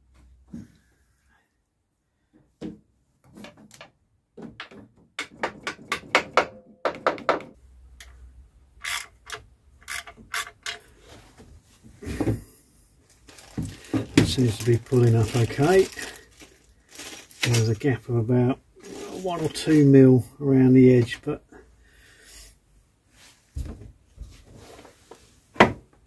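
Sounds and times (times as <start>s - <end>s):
ratchet spanner clicking: 8.8s - 10.8s.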